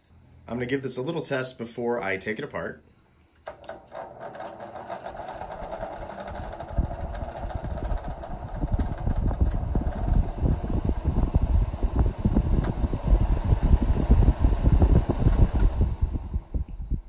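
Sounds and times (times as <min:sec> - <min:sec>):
fan motor hum with rocky rumble: 0:03.4 - 0:17.0.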